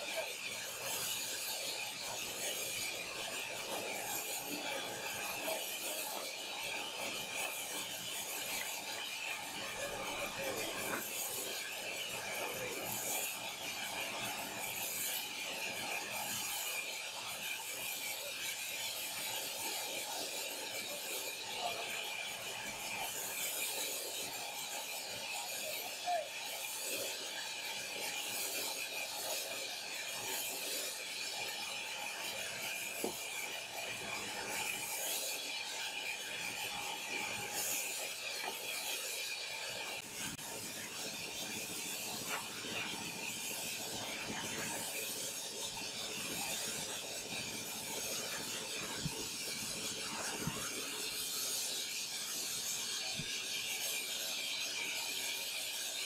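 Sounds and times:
band saw cutting log: 22.6 - 53.8.

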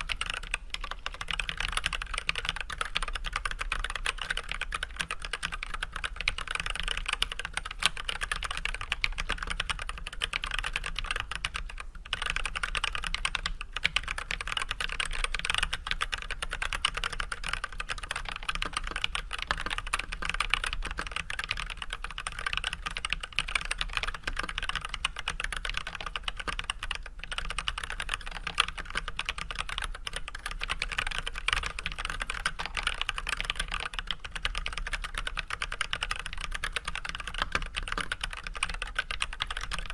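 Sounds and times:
mechanical keyboard typing: 0.0 - 39.9.

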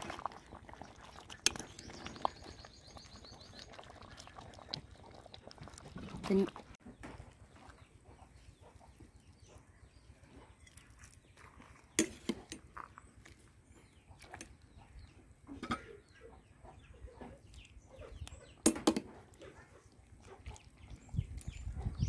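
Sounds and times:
chickens clucking: 6.9 - 10.6, 14.8 - 22.0.

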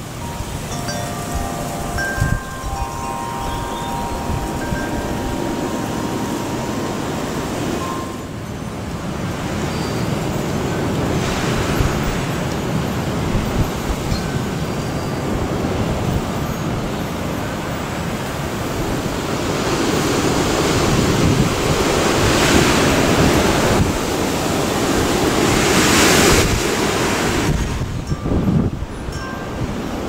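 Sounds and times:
storm wind gusting: 0.0 - 14.3
wind buffeting microphone: 0.0 - 30.0.

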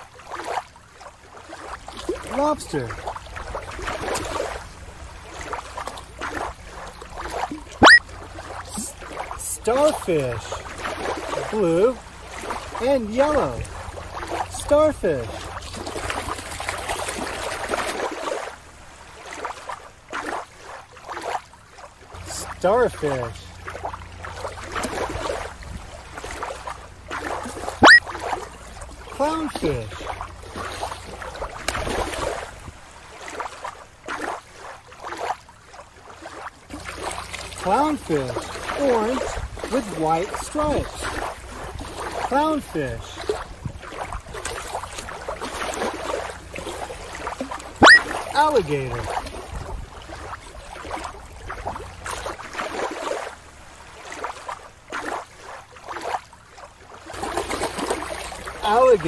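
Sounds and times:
bursts of water noise: 0.0 - 59.0
water lapping: 0.0 - 59.0
wind rumble on microphone: 24.9 - 26.4, 39.2 - 39.7, 43.3 - 45.3, 49.0 - 52.4.

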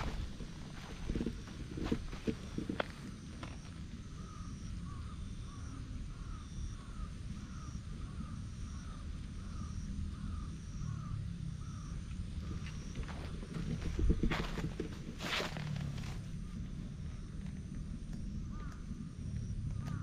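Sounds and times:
bird calling: 0.0 - 20.0
low rumble: 0.0 - 20.0.

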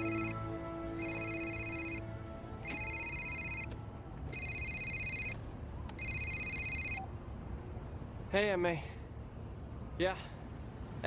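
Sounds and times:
mobile phone ringtone: 0.0 - 3.7, 4.3 - 5.4, 6.0 - 7.0.

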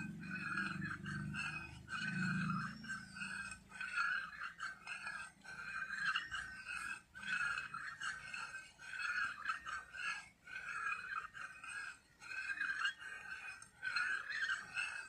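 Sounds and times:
metal spoon scraping a bowl: 0.0 - 15.0.

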